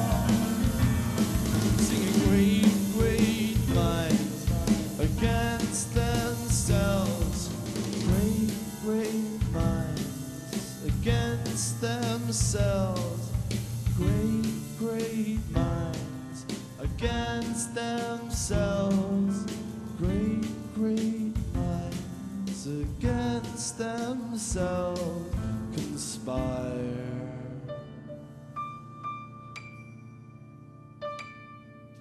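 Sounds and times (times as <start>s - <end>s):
live band playing: 0.0s - 23.6s
person singing: 0.0s - 28.3s.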